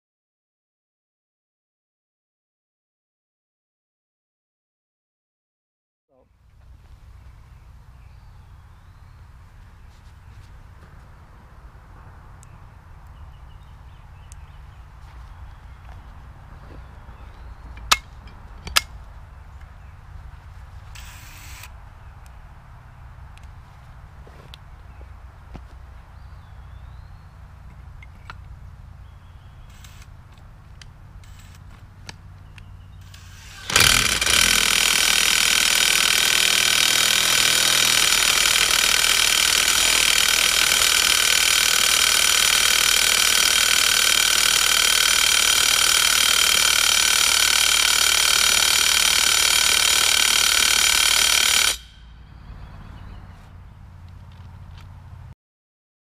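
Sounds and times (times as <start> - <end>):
cordless power tool running: 21.0 - 21.7, 32.9 - 52.1.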